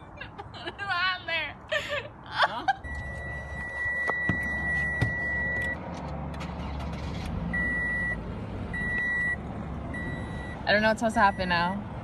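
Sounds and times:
car warning chime beeps: 2.8s - 5.8s, 7.5s - 11.8s.

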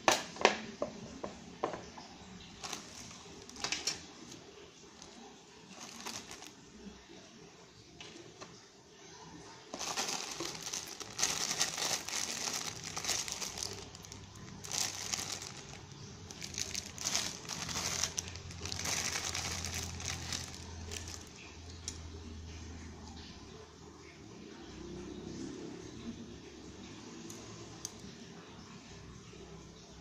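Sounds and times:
plastic bags crinkling: 2.4s - 6.8s, 9.7s - 22.0s.

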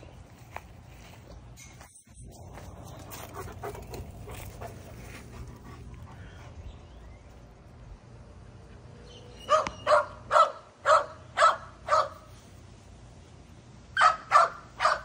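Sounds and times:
dog barking: 9.5s - 12.3s, 14.0s - 15.0s.

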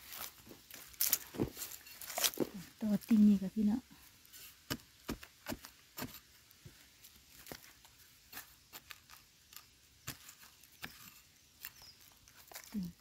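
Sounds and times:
digging blade striking stony soil: 4.5s - 6.4s, 7.3s - 12.7s.

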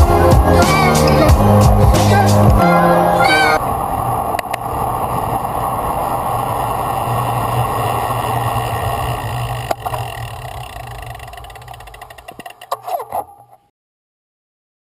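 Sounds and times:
bike tyre noise: 0.0s - 13.7s
wind rushing over microphone: 0.2s - 11.3s.

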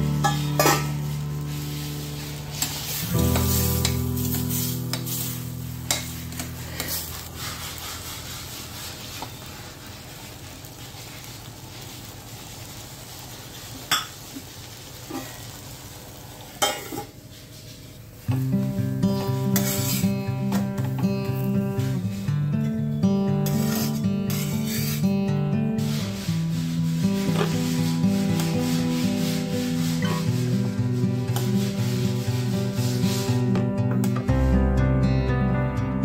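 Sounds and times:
food sizzling in pans: 0.0s - 34.5s
steel lid clattering: 0.2s - 0.9s.

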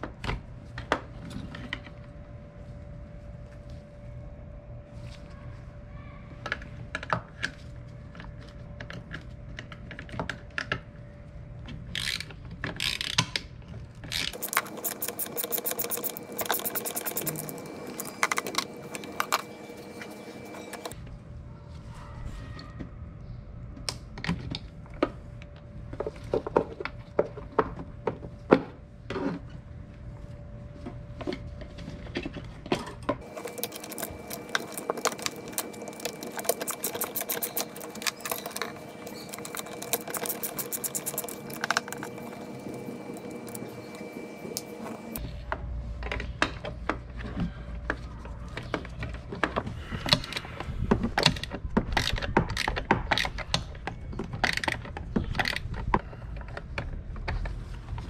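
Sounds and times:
ratchet wrench clicking rapidly: 14.2s - 19.3s, 33.4s - 42.3s.

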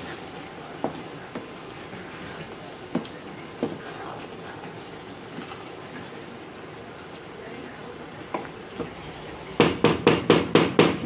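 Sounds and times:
faint steady hiss: 0.0s - 10.9s.

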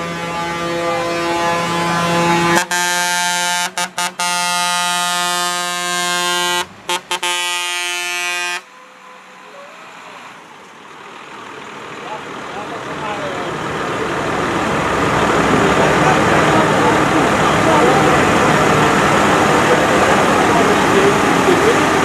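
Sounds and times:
tractor air horn blasts: 0.0s - 8.9s
tractor engine: 0.0s - 22.0s.

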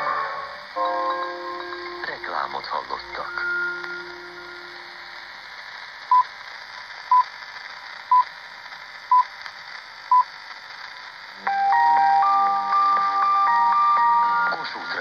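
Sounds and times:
faint radio speaker hiss: 0.0s - 15.0s
radio time signal beeps: 0.8s - 4.8s, 6.1s - 6.3s, 7.1s - 7.3s, 8.1s - 8.3s, 9.1s - 9.3s, 10.0s - 10.4s.

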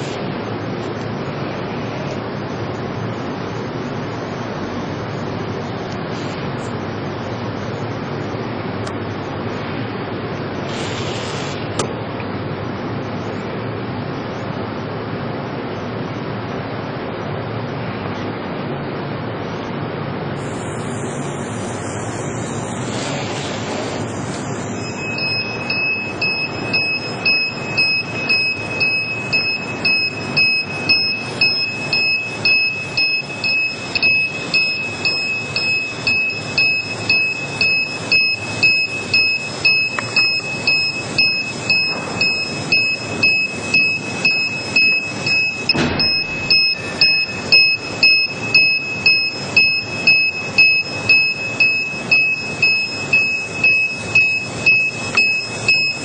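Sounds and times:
rhythmic chugging hiss: 20.4s - 56.0s
high-pitched electronic buzzer tone: 24.0s - 56.0s.

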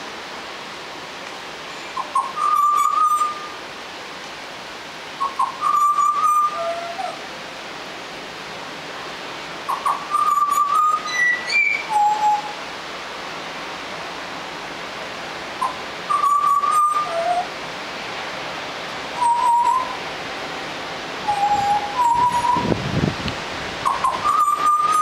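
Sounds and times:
bird whistling flute-like notes: 2.0s - 3.6s, 5.2s - 7.2s, 9.7s - 12.6s, 15.6s - 17.5s, 19.2s - 20.0s, 21.2s - 22.7s, 23.9s - 25.0s.

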